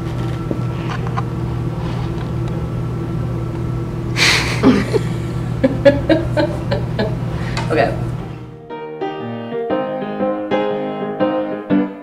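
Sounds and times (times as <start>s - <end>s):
low electrical hum: 0.0s - 8.6s
person laughing breathily: 4.2s - 7.7s.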